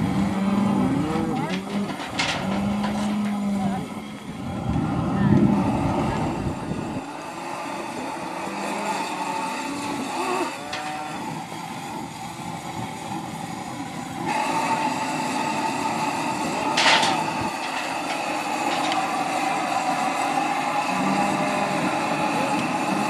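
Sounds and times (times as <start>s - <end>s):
cattle bawling: 0.0s - 3.9s, 8.2s - 11.4s, 20.8s - 23.0s.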